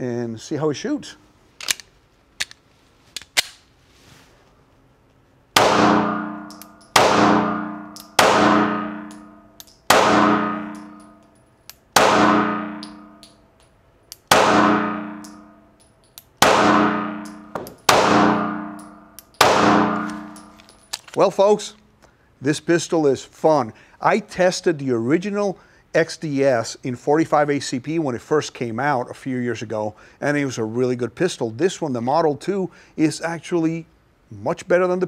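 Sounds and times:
pistol shots indoors: 0:05.5 - 0:13.4, 0:14.0 - 0:20.9.

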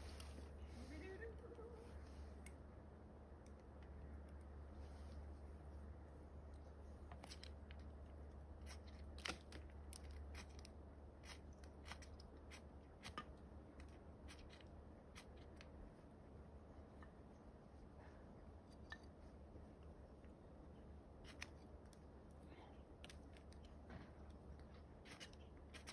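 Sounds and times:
kindling clicks and scrapes: 0:06.5 - 0:15.8, 0:21.1 - 0:25.9.

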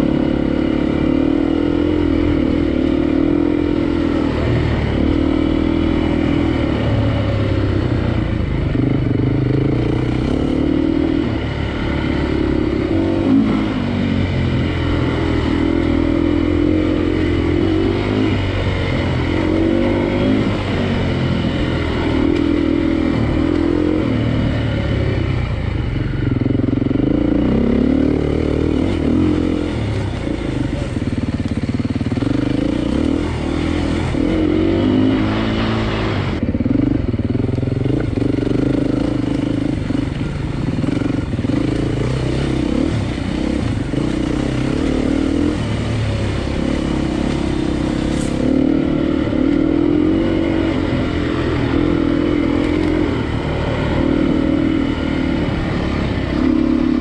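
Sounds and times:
vehicle engine running: 0:00.0 - 0:57.0.

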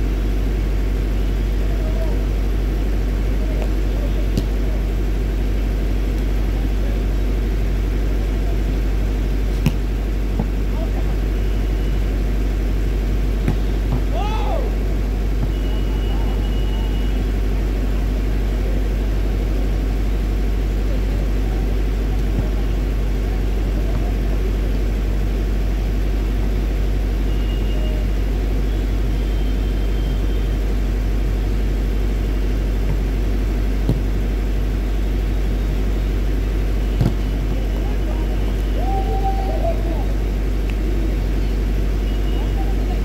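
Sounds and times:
volleyball being struck: 0:03.6 - 0:04.7, 0:09.4 - 0:10.8, 0:13.1 - 0:16.5, 0:22.1 - 0:23.0, 0:32.6 - 0:34.8, 0:36.8 - 0:37.8.

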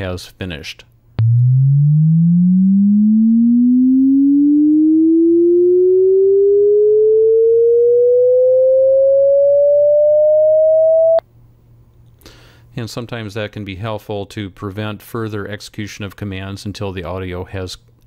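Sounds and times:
sine tone sweeping upward: 0:01.2 - 0:11.2.

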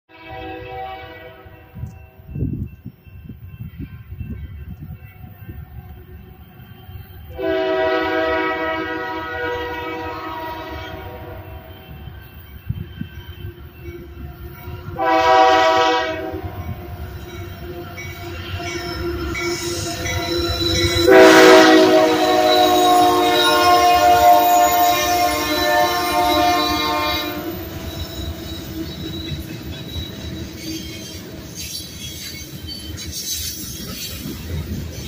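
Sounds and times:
locomotive air horn blasts: 0:00.1 - 0:01.9, 0:07.3 - 0:12.1, 0:14.9 - 0:16.7, 0:20.8 - 0:27.7
train rumble: 0:00.4 - 0:35.0.

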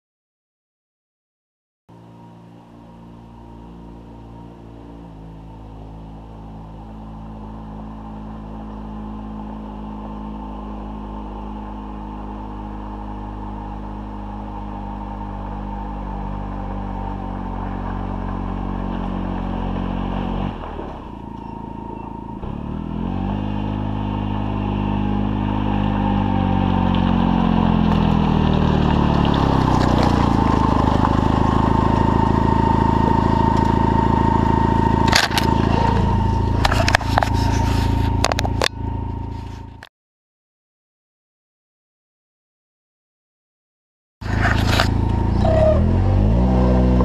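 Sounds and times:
utility vehicle engine running: 0:01.9 - 0:39.9, 0:44.2 - 0:47.0
camera knocks and scrapes: 0:36.6 - 0:38.7.

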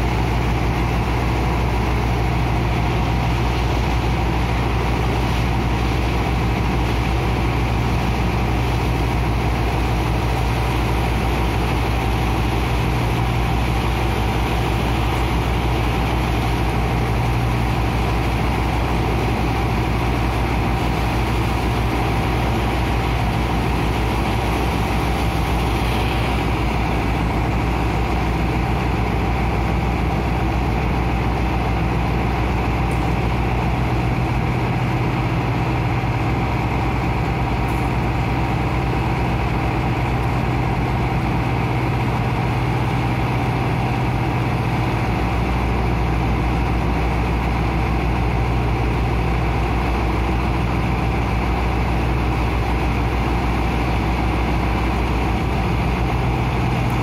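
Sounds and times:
pump engine drone: 0:00.0 - 0:57.0
water jetting from hose: 0:09.5 - 0:28.0.

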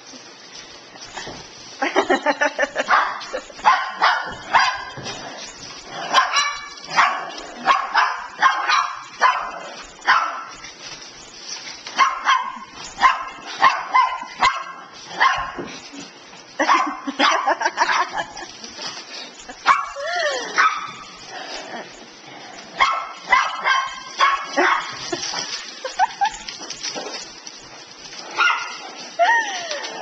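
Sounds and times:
dogs barking: 0:02.8 - 0:05.2, 0:05.9 - 0:10.6, 0:12.0 - 0:15.7, 0:16.6 - 0:18.5, 0:19.6 - 0:20.0, 0:22.8 - 0:26.5, 0:28.3 - 0:29.1.

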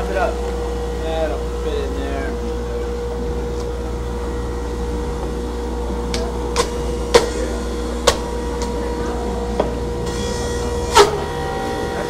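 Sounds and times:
juicer motor whirring: 0:00.0 - 0:12.0
sharp knocks: 0:06.6 - 0:08.3.

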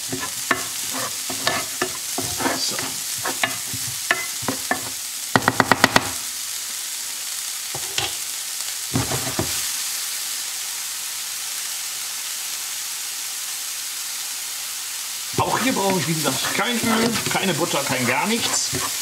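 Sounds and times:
spatula stirring and scraping: 0:00.0 - 0:05.0, 0:15.4 - 0:19.0
spatula tapping pan: 0:00.0 - 0:06.2, 0:15.5 - 0:19.0
onion sizzling in frying pan: 0:00.0 - 0:19.0.

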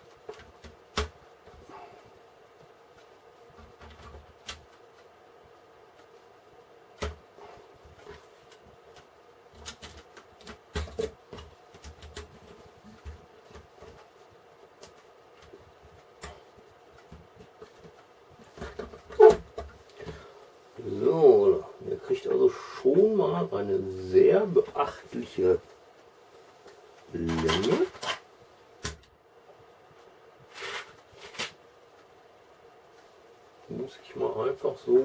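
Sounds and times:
faint steady hum: 0:00.0 - 0:35.0
rustling of plastic parts: 0:02.4 - 0:20.6, 0:24.8 - 0:29.0, 0:29.9 - 0:32.2.

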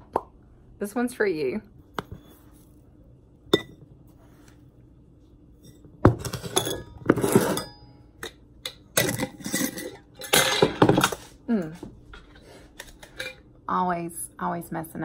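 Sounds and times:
glass jars and canister clinking: 0:06.2 - 0:07.8.

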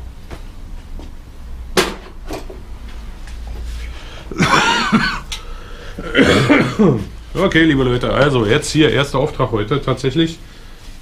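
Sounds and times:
low steady hum: 0:00.0 - 0:11.0
man's throaty vocal sound: 0:04.3 - 0:07.1.

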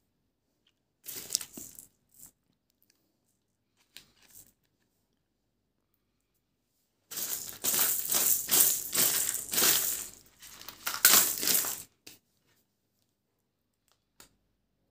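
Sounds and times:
candy wrappers crinkling: 0:01.0 - 0:02.3, 0:07.1 - 0:11.9.

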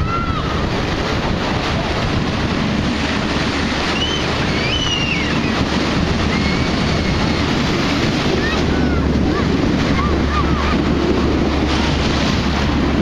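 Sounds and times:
surf breaking in shallows: 0:00.0 - 0:13.0
wind buffeting microphone: 0:00.0 - 0:13.0.

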